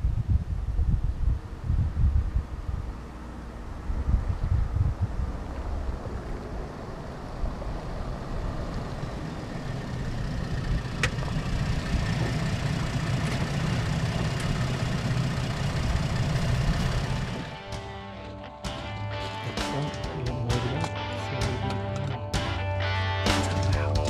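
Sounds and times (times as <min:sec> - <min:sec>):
pickup truck driving on dirt road: 0:00.6 - 0:18.8.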